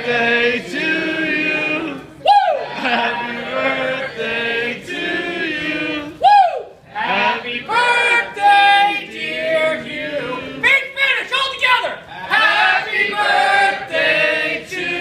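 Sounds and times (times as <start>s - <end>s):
people singing together: 0.0s - 10.7s, 12.1s - 15.0s
whooping shout: 2.2s - 2.8s, 6.2s - 6.8s.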